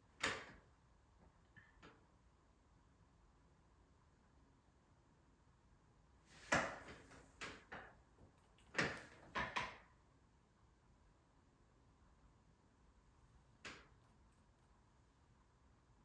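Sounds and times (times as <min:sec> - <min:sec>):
objects knocking and rattling: 0:08.6 - 0:09.9.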